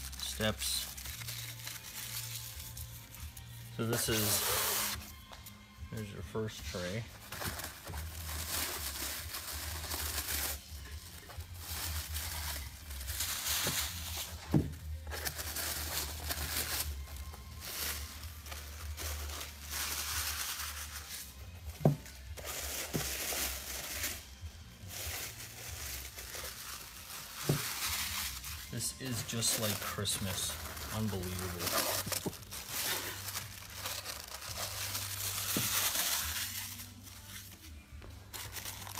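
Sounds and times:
packing wrap rustling: 22.4 - 37.6, 38.2 - 38.9.

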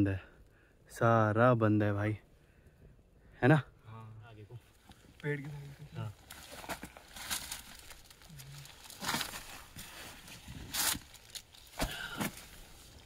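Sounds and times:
clothing and bag rustling: 5.4 - 13.0.

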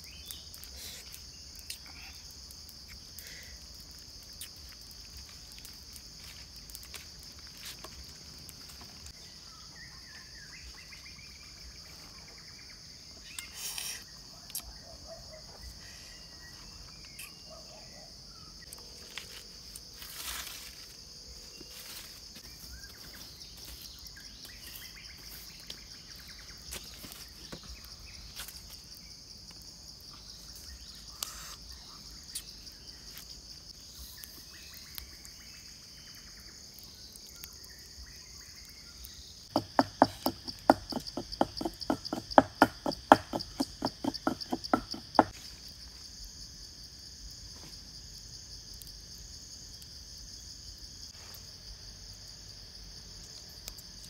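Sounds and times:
insects buzzing: 0.0 - 54.0
rapid sharp knocks: 39.5 - 45.3.

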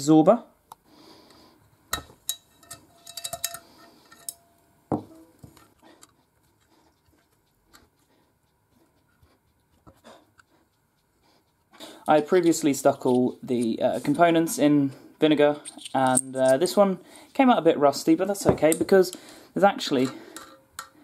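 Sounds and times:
small metal parts clinking: 2.2 - 4.5, 15.6 - 16.7.

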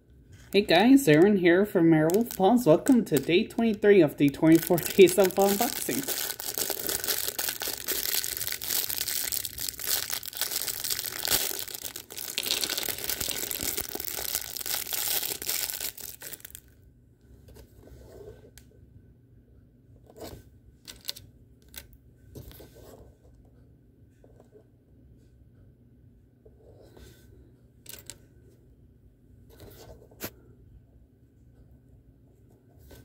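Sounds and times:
packaging tearing and crinkling: 2.0 - 16.7.

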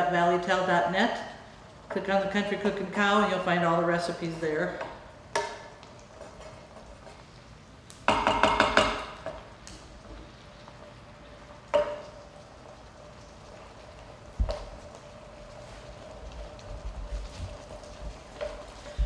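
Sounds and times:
stirring vegetables in skillet: 1.4 - 19.0
utensil tapping skillet: 4.7 - 12.4, 17.6 - 19.0.

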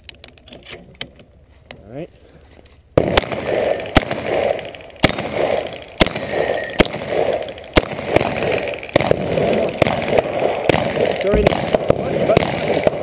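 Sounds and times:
shotgun shots: 3.0 - 13.0.

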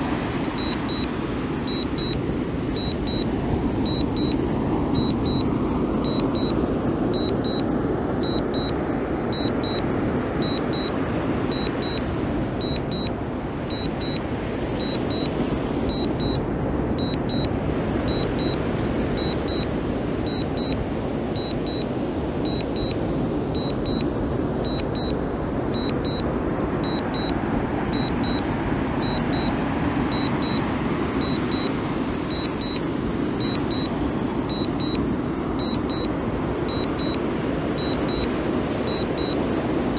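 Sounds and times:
steady rushing noise: 0.0 - 39.9
short high double beeps: 0.6 - 1.1, 1.7 - 2.2, 2.8 - 4.4, 5.0 - 6.6, 7.2 - 13.1, 13.7 - 14.2, 14.8 - 16.4, 17.0 - 17.5, 19.2 - 19.7, 20.3 - 20.8, 21.4 - 23.0, 23.6 - 25.2, 25.8 - 32.8, 33.4 - 36.1, 36.7 - 38.3, 38.9 - 39.4.

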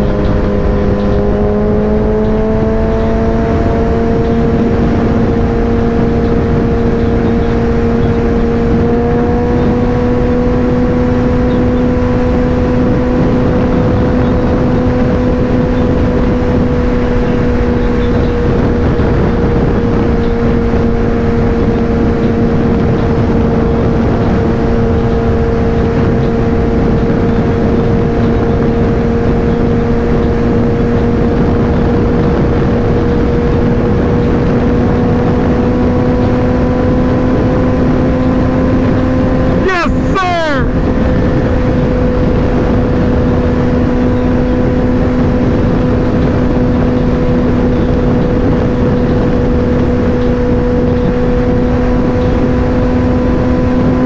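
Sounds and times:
motorcycle engine cruising: 0.0 - 54.0
wind rushing: 12.0 - 53.5.

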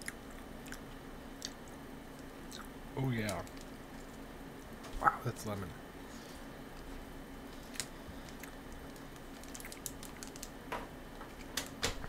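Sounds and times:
plastic candy wrapper crinkling: 3.1 - 4.2, 7.6 - 10.6.

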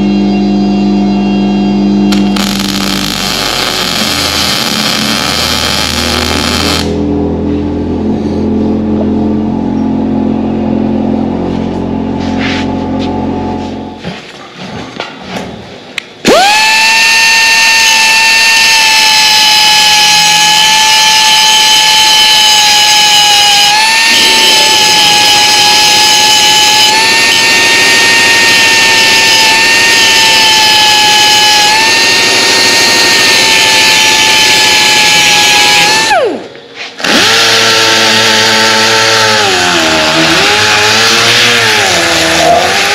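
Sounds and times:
angle grinder grinding steel: 2.1 - 7.0, 16.3 - 42.9.

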